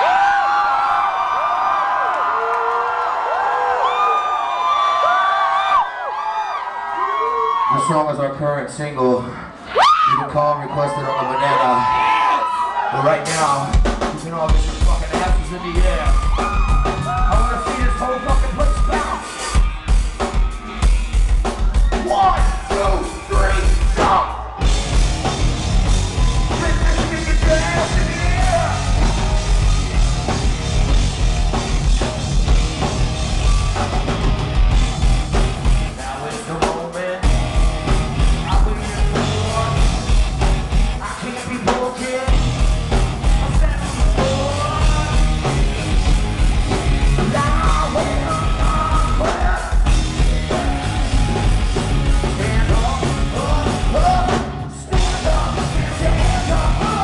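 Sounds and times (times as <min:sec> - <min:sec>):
hard rock band playing live: 0:13.2 - 0:57.0
singer yelling: 0:15.1 - 0:19.6, 0:26.2 - 0:29.0.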